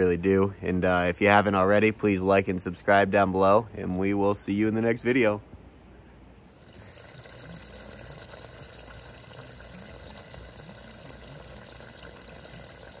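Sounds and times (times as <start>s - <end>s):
water pouring into a puddle: 6.5s - 13.0s.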